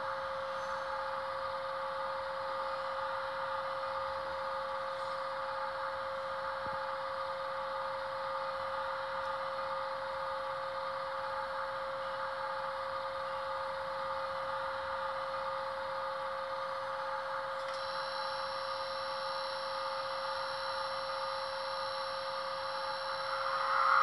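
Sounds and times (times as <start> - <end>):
locomotive idle hum with hiss: 0.0 - 24.0
high thin whine: 20.3 - 24.0.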